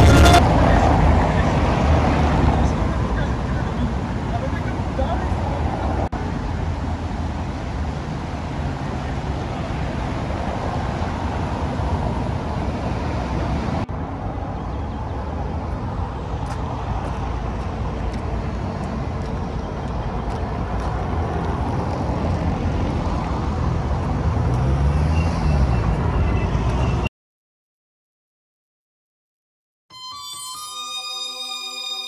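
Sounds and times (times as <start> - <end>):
vehicle engine passing by: 0.0 - 4.2, 20.4 - 27.0
cars passing on wet cobbles: 4.0 - 14.5, 15.2 - 27.0.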